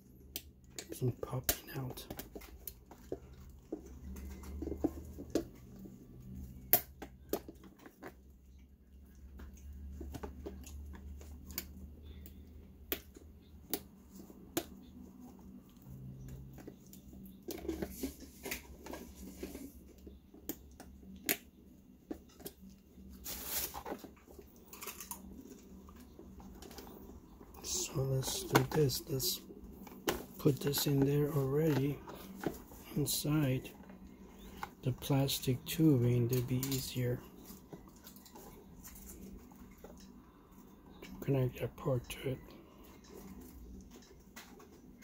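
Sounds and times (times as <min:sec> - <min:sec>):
scraping rustles: 0:23.1 - 0:39.6.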